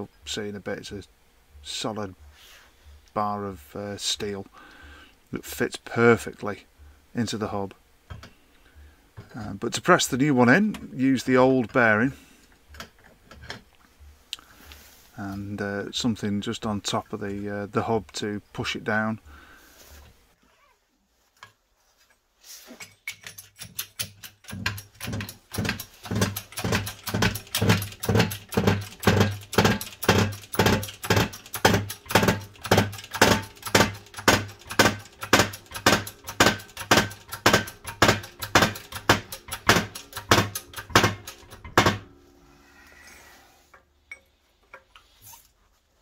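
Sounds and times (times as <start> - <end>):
hydraulic jack pumping: 22.8 - 42.1.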